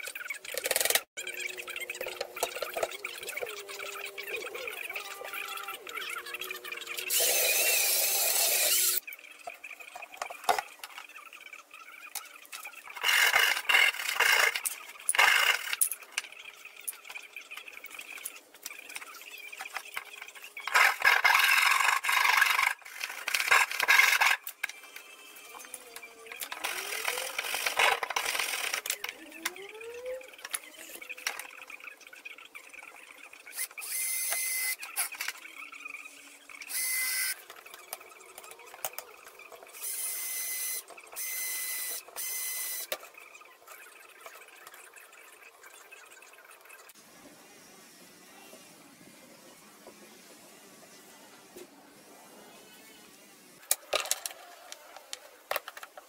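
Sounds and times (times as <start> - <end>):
tool and hardware noise: 0.0 - 11.2, 12.0 - 31.8, 33.5 - 44.9
cordless drill driving screws: 7.1 - 9.0.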